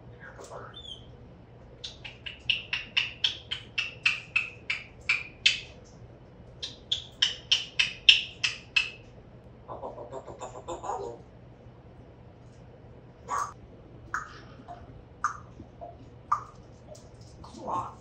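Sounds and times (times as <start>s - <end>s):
parrot chatter: 1.8s - 5.8s, 6.6s - 9.1s, 9.7s - 11.3s, 13.2s - 18.0s
parrot clicking: 1.8s - 6.0s, 6.6s - 9.1s, 13.4s - 14.4s, 15.2s - 17.1s.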